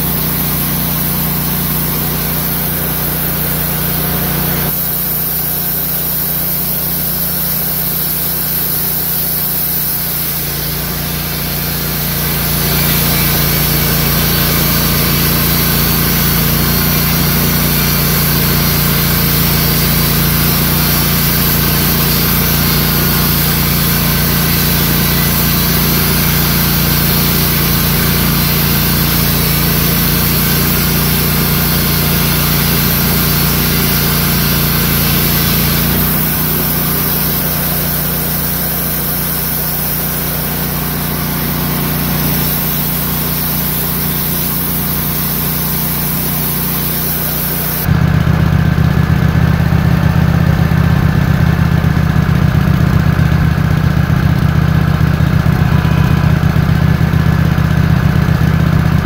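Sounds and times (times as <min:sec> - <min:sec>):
band sawmill cutting through log: 0:00.0 - 0:59.0.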